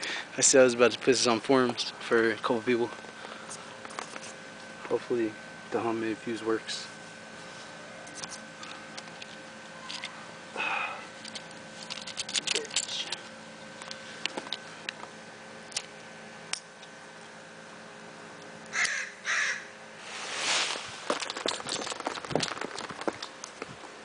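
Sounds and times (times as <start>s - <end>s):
flash powder flaring hiss: 20.0s - 21.0s.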